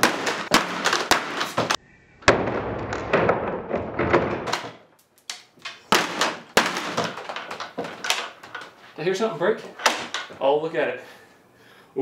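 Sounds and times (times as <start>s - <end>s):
hammer banging on door: 0.0s - 4.8s, 5.6s - 8.8s.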